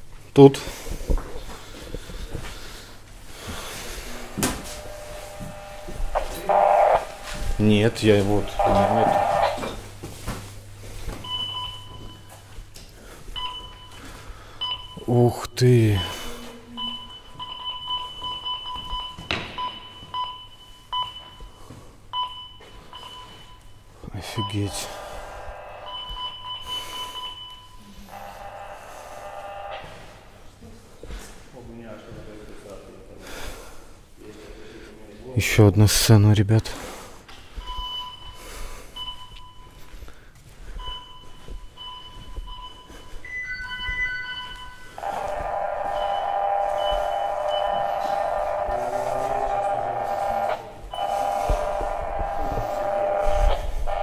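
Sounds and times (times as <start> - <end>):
high two-tone electronic beeping: 40.8 - 54.0.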